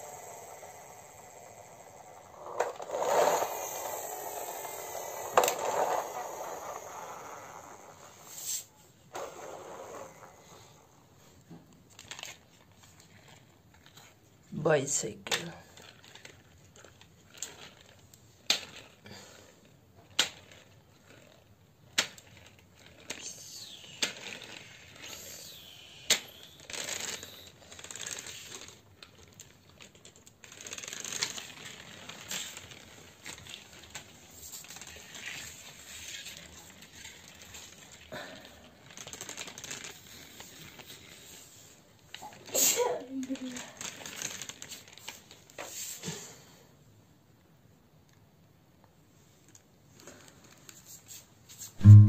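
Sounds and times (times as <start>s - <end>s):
toy scraping on floor: 0.0s - 11.2s, 22.5s - 28.8s, 30.5s - 38.1s.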